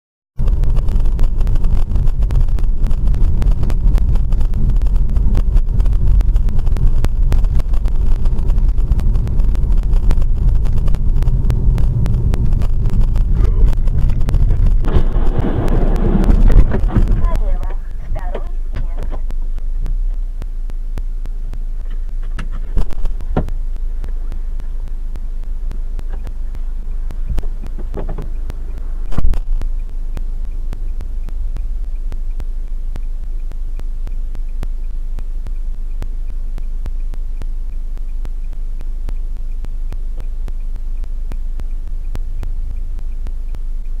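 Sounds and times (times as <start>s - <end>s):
car engine idling: 0.4s - 44.0s
faint even ticking: 0.4s - 44.0s
loud thump: 13.7s - 17.4s.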